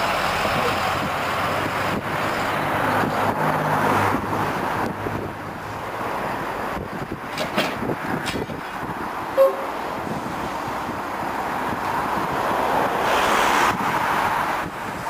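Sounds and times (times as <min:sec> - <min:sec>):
diesel locomotive running: 0:00.0 - 0:03.5, 0:04.1 - 0:13.1
locomotive horn toot: 0:09.4 - 0:09.8.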